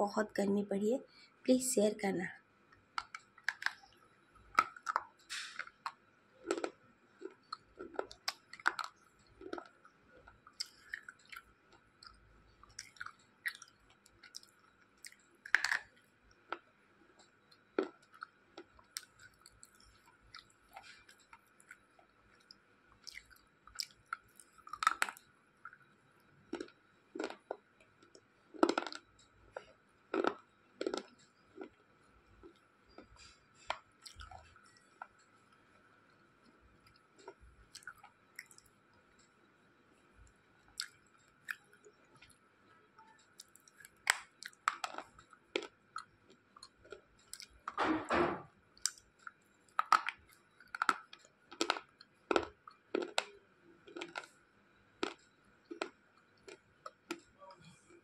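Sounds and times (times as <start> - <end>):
person crunching slate pencils: 3.0 - 9.8, 12.6 - 16.6, 23.0 - 25.2, 26.5 - 31.8, 43.4 - 45.7, 49.7 - 54.3.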